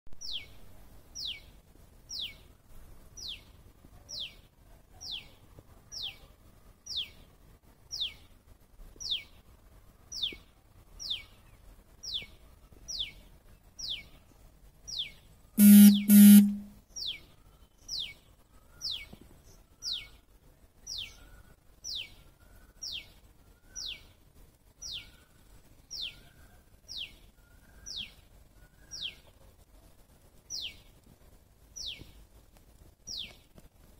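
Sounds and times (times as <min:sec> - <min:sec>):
horn-like beeps: 0:15.6 - 0:16.8.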